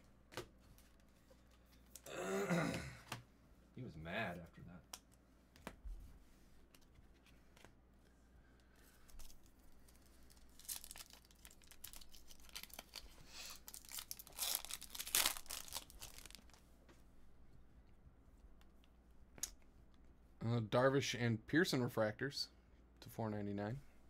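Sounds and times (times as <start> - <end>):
foil wrapper tearing and crinkling: 10.3 - 16.6.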